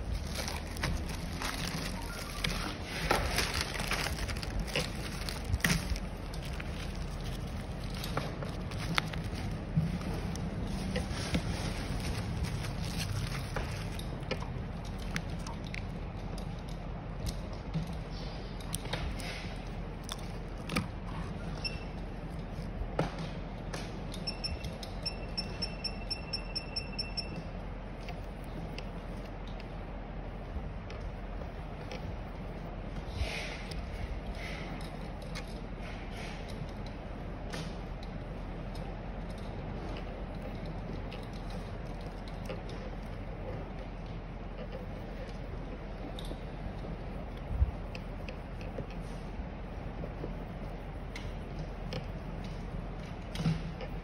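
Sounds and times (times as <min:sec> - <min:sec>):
plastic packaging crinkling: 0:00.0 - 0:14.3
low steady hum: 0:00.0 - 0:54.0.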